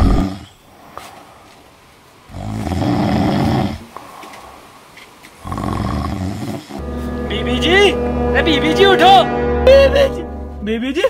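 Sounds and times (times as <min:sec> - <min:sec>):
man snoring: 0:02.3 - 0:03.9, 0:05.4 - 0:06.8.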